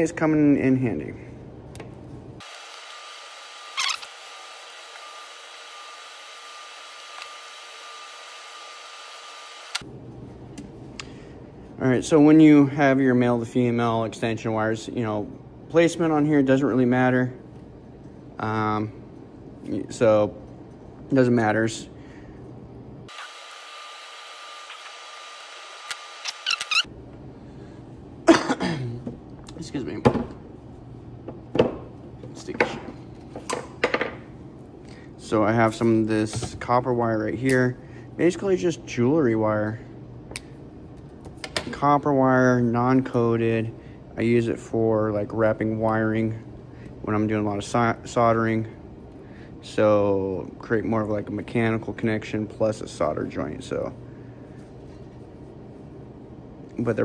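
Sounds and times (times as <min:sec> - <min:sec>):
pliers crimping scrape: 0:25.9 - 0:26.9
plastic connector clicks and squeaks: 0:26.2 - 0:26.9
person coughing: 0:28.2 - 0:29.1.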